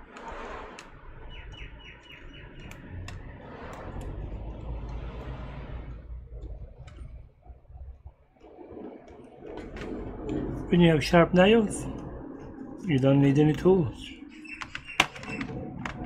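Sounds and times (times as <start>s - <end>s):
bird chirping trill: 1.2s - 3.4s, 13.7s - 15.6s.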